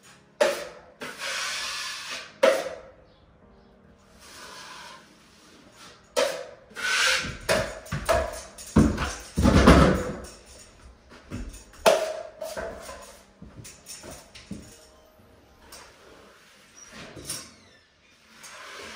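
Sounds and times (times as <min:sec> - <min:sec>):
taping knife scraping metal pan: 0:00.4 - 0:02.8, 0:04.2 - 0:08.2
footsteps thumping off stepladder: 0:07.2 - 0:14.8.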